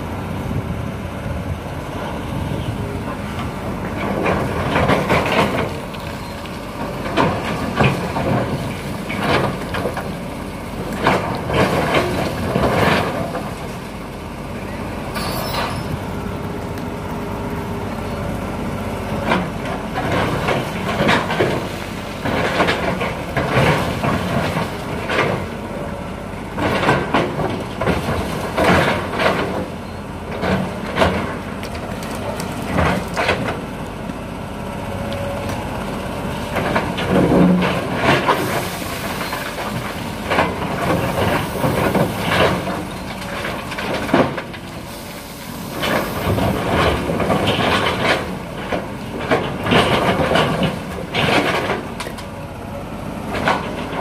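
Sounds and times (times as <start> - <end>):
excavator diesel engine running: 0.0 - 54.0
rocks and gravel clattering: 3.9 - 13.9, 36.3 - 52.3.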